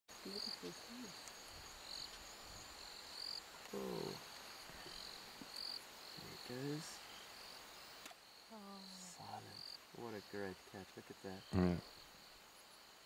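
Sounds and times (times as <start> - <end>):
background hiss: 0.1 - 13.0
insects chirping: 0.1 - 13.0
person murmuring: 11.5 - 11.8.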